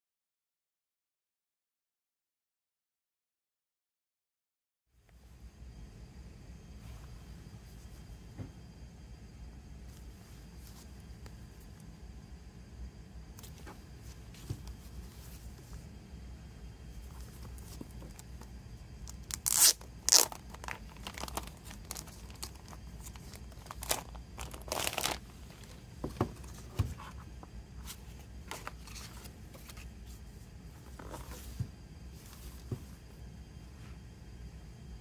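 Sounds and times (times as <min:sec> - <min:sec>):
plastic wrap ripping: 0:19.1 - 0:25.3
plastic crinkling: 0:19.1 - 0:25.8.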